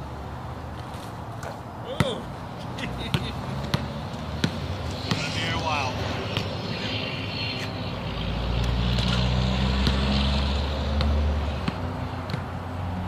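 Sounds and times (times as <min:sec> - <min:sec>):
vehicle engine hum passing: 0:02.3 - 0:13.0
basketball bouncing on asphalt: 0:03.1 - 0:05.3, 0:09.0 - 0:13.0.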